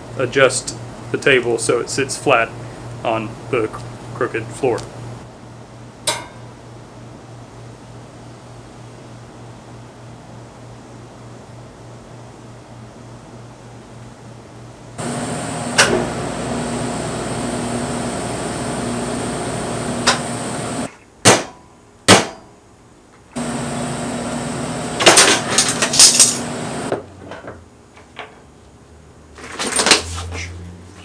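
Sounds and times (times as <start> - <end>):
hammer strikes on metal: 6.0 - 6.5, 21.2 - 22.5
welding arc buzzing: 15.0 - 20.9, 23.4 - 26.9.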